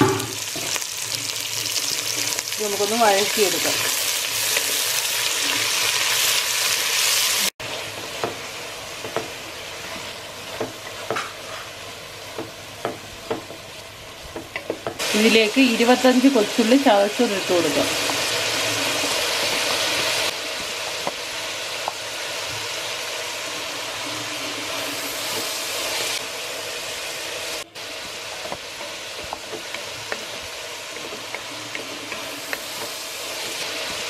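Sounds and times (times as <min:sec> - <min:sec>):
onions sizzling in oil: 0:00.0 - 0:34.0.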